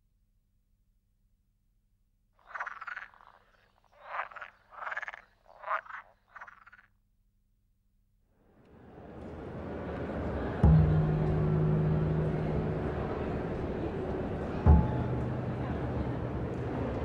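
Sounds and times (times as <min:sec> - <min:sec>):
frog croaking: 0:02.4 - 0:06.9.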